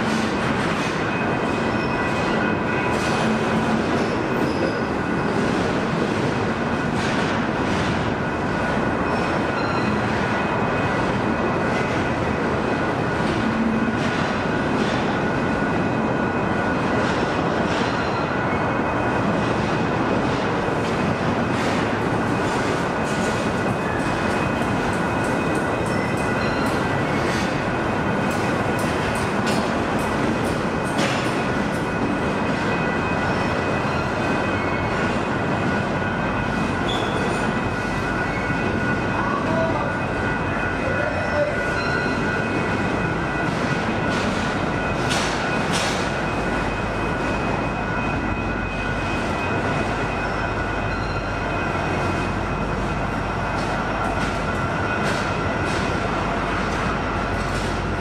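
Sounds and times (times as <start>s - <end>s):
freight train wheels rumbling on rail: 0.0s - 58.0s
wheels and couplings clanking: 16.8s - 39.5s
high-pitched wheel squeal: 36.8s - 37.4s.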